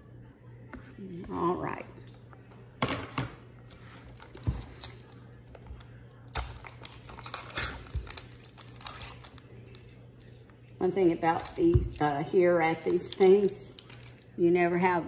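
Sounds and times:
plastic seal crinkling: 5.8s - 10.0s.

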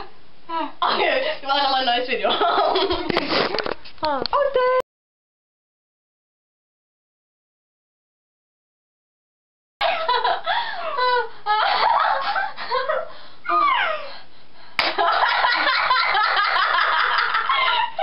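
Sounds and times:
girls laughing: 2.2s - 3.6s, 9.8s - 14.1s, 14.8s - 18.0s.

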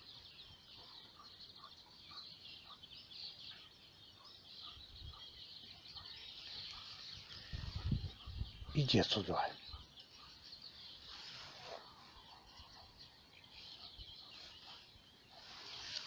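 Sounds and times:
songbirds chirping and trilling: 0.0s - 16.0s
low rustle: 14.4s - 16.0s.

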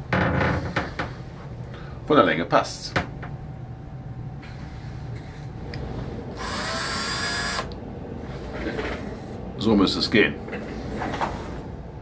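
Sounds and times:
cordless drill whining: 6.4s - 7.8s.

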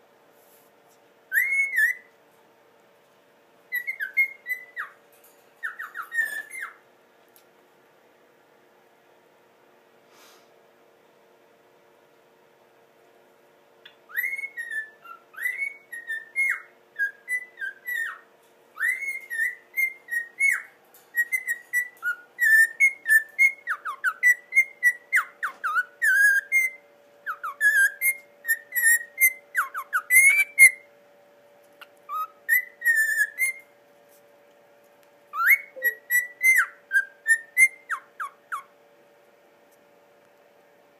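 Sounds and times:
cockatiel whistling a tune: 1.3s - 2.1s, 3.7s - 5.0s, 5.6s - 6.8s, 14.1s - 18.2s, 18.8s - 30.9s, 32.1s - 33.7s, 35.3s - 38.7s.

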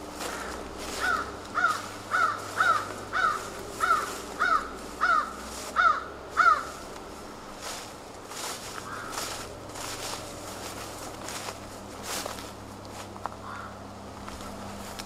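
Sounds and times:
crow cawing: 0.1s - 6.9s, 8.4s - 10.8s, 13.4s - 13.9s.

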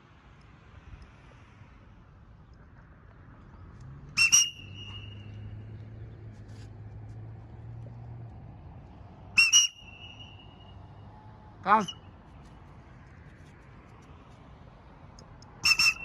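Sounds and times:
double whistle: 4.1s - 5.5s, 9.4s - 10.9s, 15.6s - 16.0s.

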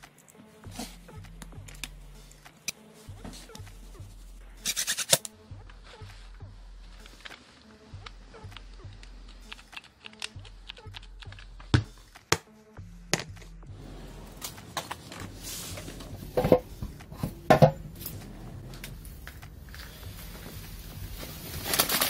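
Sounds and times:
paper bag rustling: 18.0s - 22.0s.

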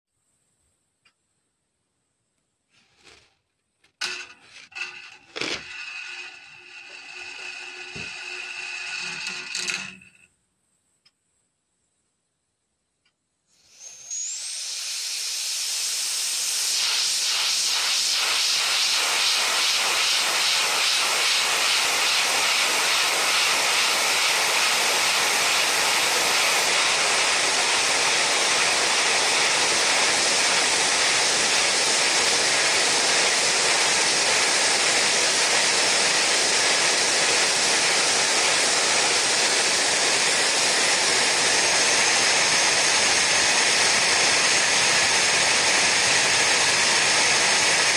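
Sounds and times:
air jet hissing: 13.5s - 47.9s.

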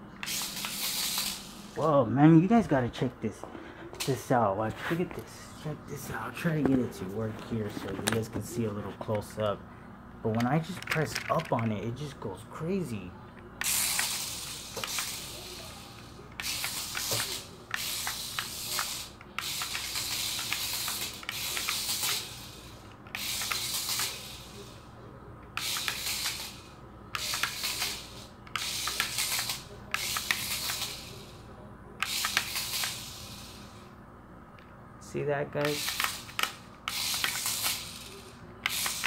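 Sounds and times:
toy car motor whirring: 0.2s - 1.7s, 13.6s - 24.9s, 25.5s - 33.8s, 35.6s - 39.0s
toy car clicks and knocks: 10.3s - 11.8s, 13.6s - 22.4s, 23.1s - 24.4s, 25.5s - 26.6s, 27.2s - 31.1s, 32.0s - 33.2s, 35.6s - 39.0s.

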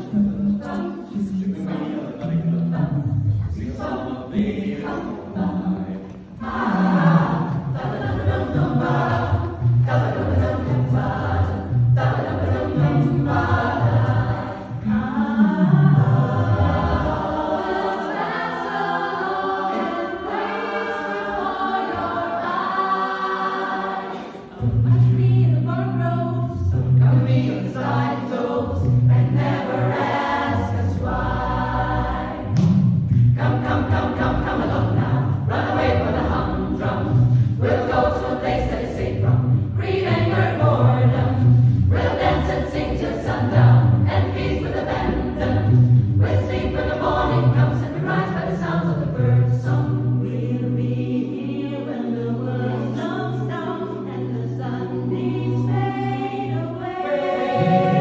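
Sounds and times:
mixed choir singing: 0.0s - 58.0s
bass voices line: 24.6s - 51.1s.

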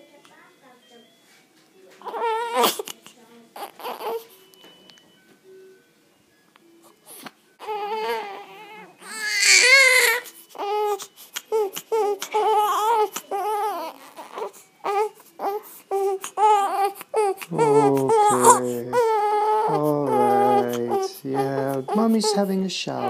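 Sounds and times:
newborn baby crying: 2.0s - 4.4s, 7.0s - 23.0s.

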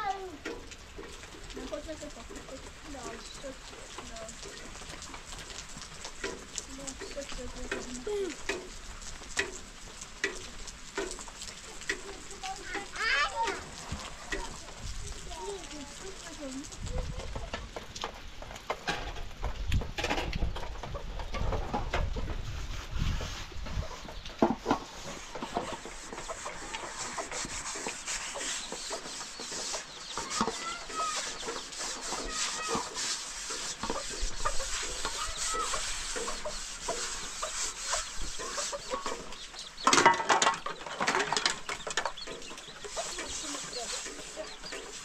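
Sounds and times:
knocks and rubbing: 17.0s - 45.0s
chickens clucking: 23.4s - 45.0s.

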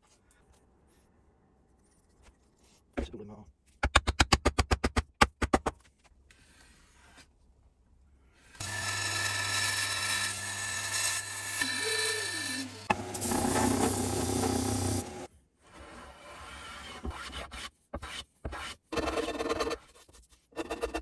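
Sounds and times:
power tool rasping wood: 8.6s - 15.3s.

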